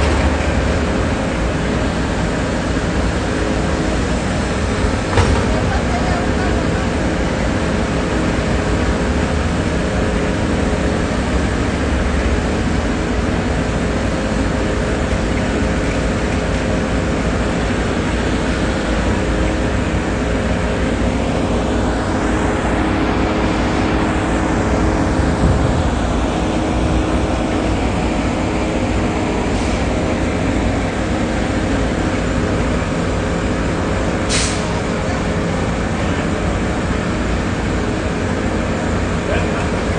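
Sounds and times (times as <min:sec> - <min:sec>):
city street traffic: 0:00.0 - 0:39.9
engine humming nearby: 0:00.0 - 0:39.9.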